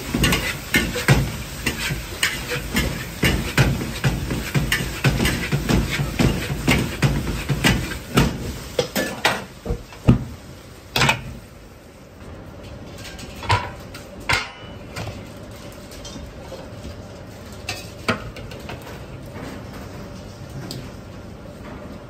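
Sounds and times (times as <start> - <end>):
kitchen noise: 0.0 - 10.2, 12.6 - 19.9
metal kitchenware clanking: 0.1 - 8.1, 13.0 - 15.0.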